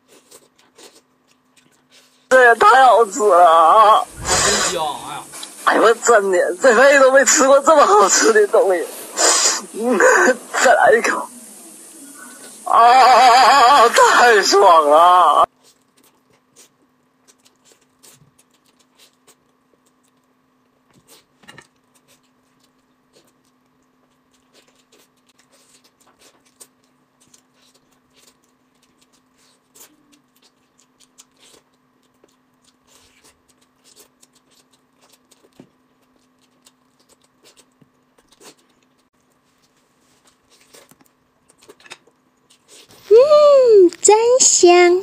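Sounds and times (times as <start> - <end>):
person chewing: 0.0 - 2.3, 15.5 - 43.1.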